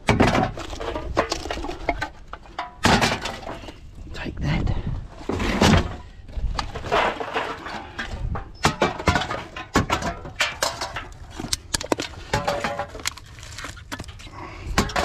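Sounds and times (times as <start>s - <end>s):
metal cans clattering: 0.0s - 3.7s, 6.6s - 15.0s
rustling scrape: 5.2s - 8.4s, 10.7s - 14.3s.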